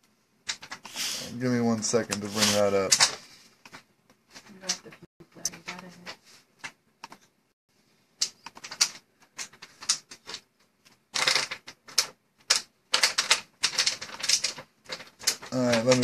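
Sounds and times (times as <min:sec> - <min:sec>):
computer keyboard typing: 0:00.4 - 0:01.0, 0:08.2 - 0:10.4, 0:11.1 - 0:16.0.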